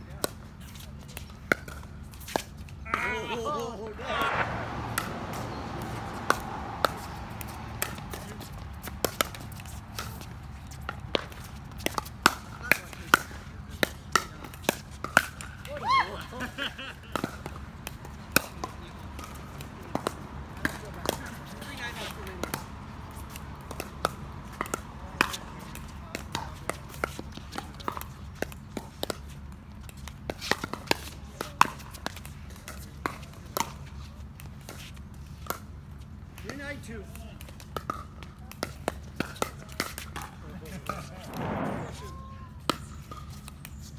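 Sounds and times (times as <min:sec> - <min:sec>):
paddles hitting plastic ball: 0:04.9 - 0:15.8, 0:17.1 - 0:21.6.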